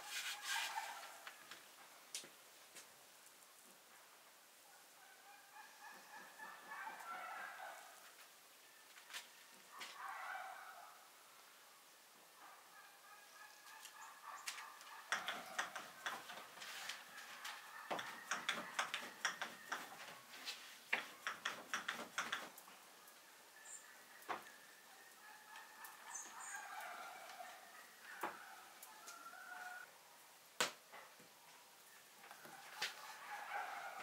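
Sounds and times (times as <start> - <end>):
clicks and taps: 14.5 - 16.4, 17.9 - 20.1, 20.9 - 22.6.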